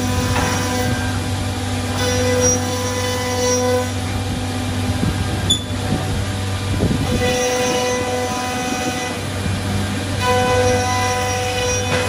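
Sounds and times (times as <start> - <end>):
boring machine whining: 0.0 - 12.0.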